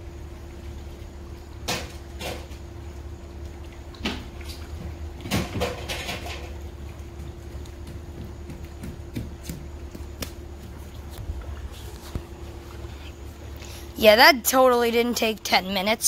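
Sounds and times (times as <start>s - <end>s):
low machine hum: 0.0s - 16.0s
sharp knocks and clacks: 7.2s - 10.7s.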